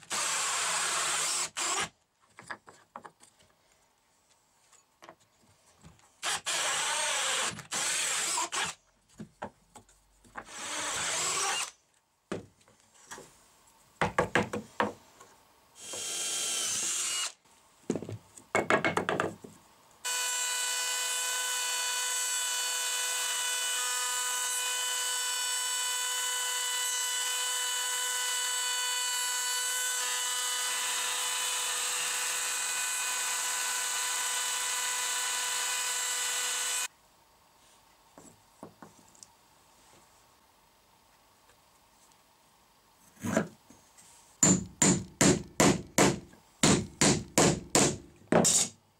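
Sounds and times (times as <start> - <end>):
hole saw drill cutting wood: 0.0 - 1.9, 6.2 - 8.8, 10.5 - 11.8, 15.8 - 17.4, 20.0 - 36.9
router high whine: 20.1 - 24.2.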